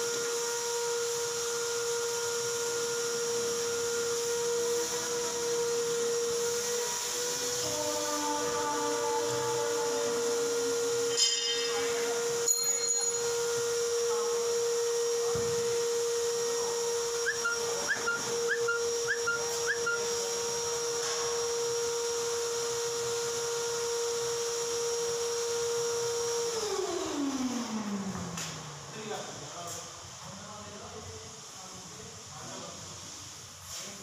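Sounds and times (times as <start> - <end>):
electric motor whining: 0.0 - 11.2.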